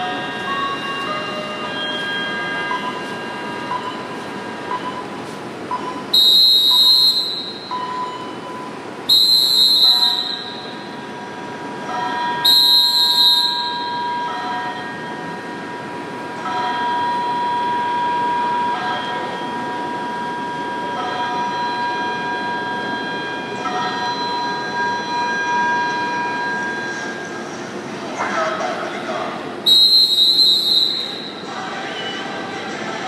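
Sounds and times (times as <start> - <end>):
busy station concourse noise: 0.0 - 33.0
high-pitched whistle blasts: 6.1 - 7.9, 9.1 - 11.0, 12.4 - 14.0, 29.7 - 31.4.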